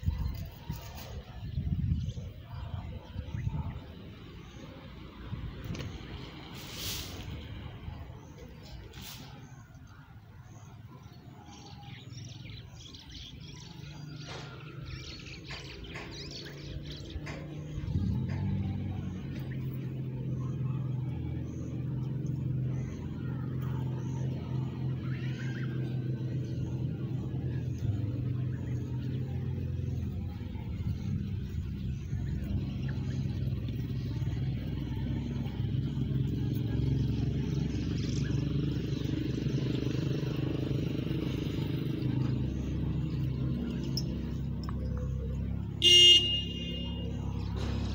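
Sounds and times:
engine humming: 0:00.0 - 0:47.9.

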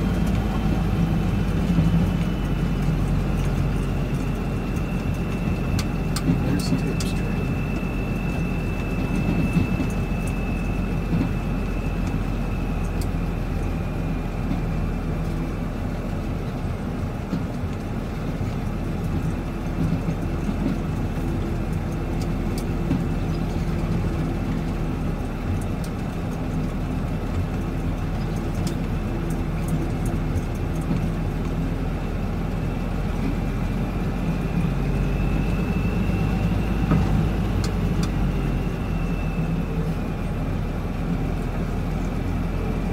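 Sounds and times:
faint high whine: 0:00.0 - 0:15.7, 0:32.0 - 0:42.9
truck diesel engine running: 0:00.0 - 0:42.9.

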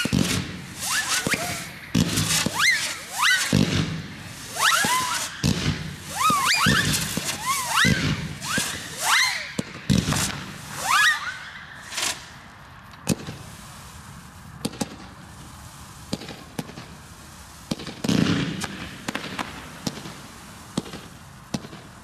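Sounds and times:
firework launch thumps: 0:00.0 - 0:10.8, 0:13.0 - 0:13.5, 0:17.6 - 0:21.9
firework whistles: 0:00.0 - 0:22.0.

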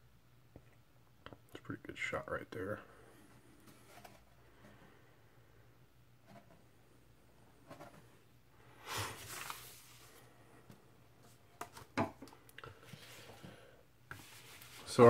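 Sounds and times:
paper packaging rustle: 0:08.9 - 0:10.2.

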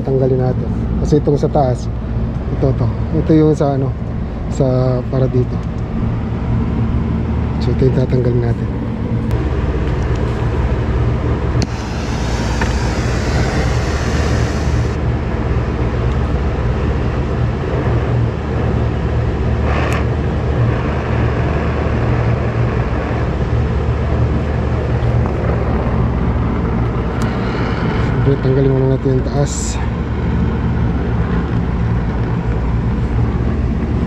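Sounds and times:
low machine drone: 0:00.0 - 0:34.0
gas torch hissing: 0:11.6 - 0:15.0
short burst of noise: 0:11.6 - 0:15.0.

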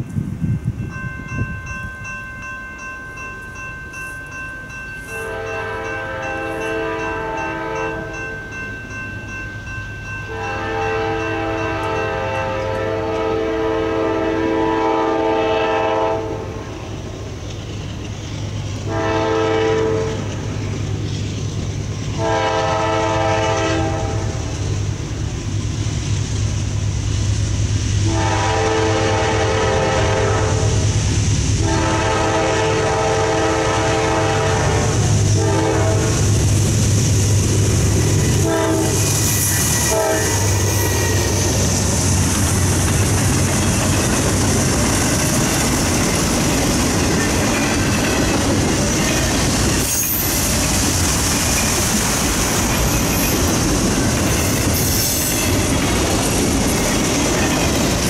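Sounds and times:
train horn blasts: 0:05.1 - 0:08.2, 0:10.3 - 0:16.7, 0:18.8 - 0:20.3, 0:22.2 - 0:24.5, 0:28.0 - 0:30.9, 0:31.6 - 0:36.3, 0:38.3 - 0:41.6
train wheels clattering on rails: 0:14.6 - 0:58.0.

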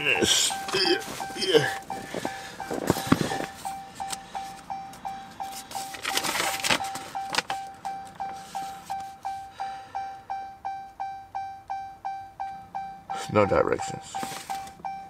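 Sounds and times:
dashboard warning chime dinging: 0:00.0 - 0:15.0.

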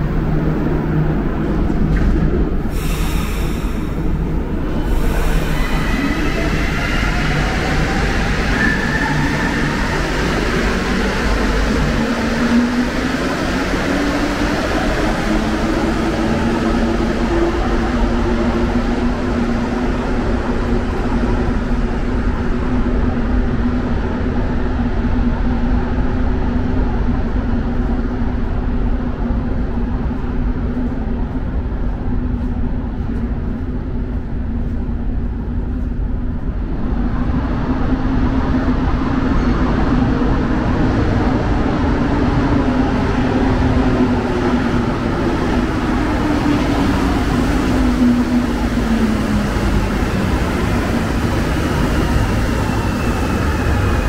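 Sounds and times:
metro train rumbling: 0:00.0 - 0:54.0
hiss: 0:02.6 - 0:04.2.

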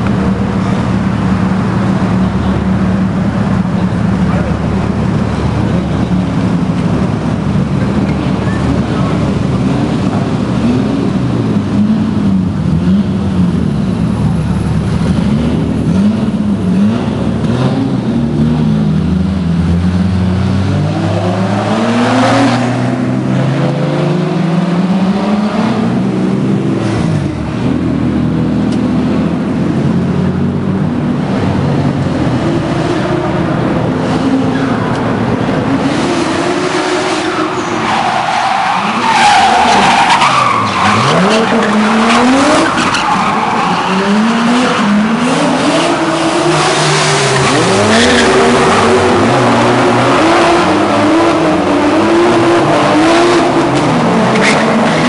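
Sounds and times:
car engines revving: 0:00.0 - 0:55.0
tyres squealing: 0:37.0 - 0:45.1.

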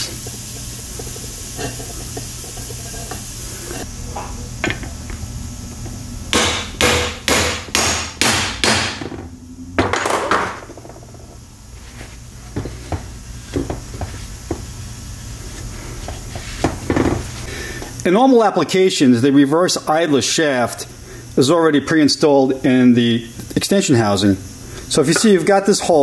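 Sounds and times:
hammer strikes on metal: 0:06.3 - 0:09.1.

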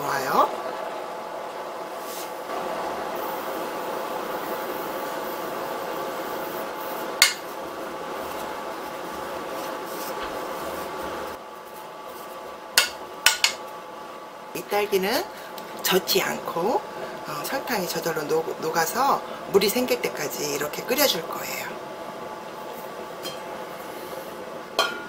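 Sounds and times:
ladle clinking against pot: 0:24.8 - 0:25.0.

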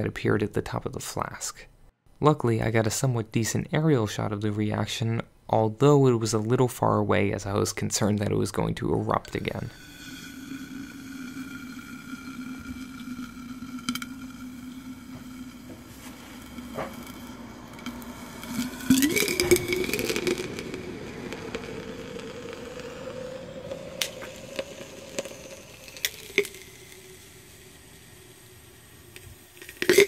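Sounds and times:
steady humming tone: 0:09.1 - 0:30.0
rising high tone: 0:09.4 - 0:27.8
chemical reaction loud burst: 0:09.6 - 0:30.0
sharp pops and crackles: 0:11.3 - 0:30.0.

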